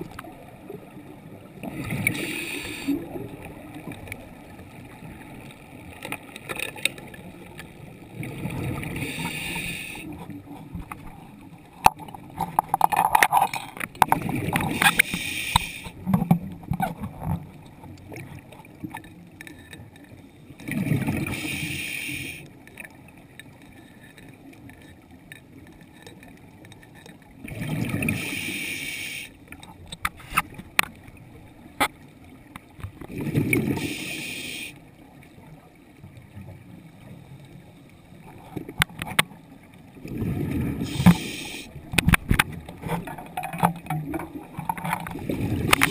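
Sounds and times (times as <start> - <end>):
diver breathing through regulator: 2.0 - 3.0, 8.9 - 10.2, 14.7 - 16.0, 21.2 - 22.5, 28.0 - 29.4, 33.7 - 34.8, 40.8 - 41.7.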